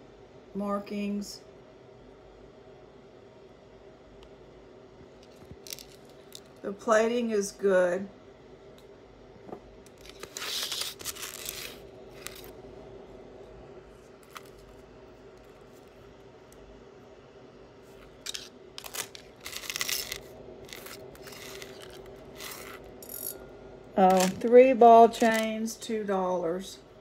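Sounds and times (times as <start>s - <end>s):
faint steady hum: 0.0s - 27.0s
jewelry clinking and rustling: 18.2s - 23.4s.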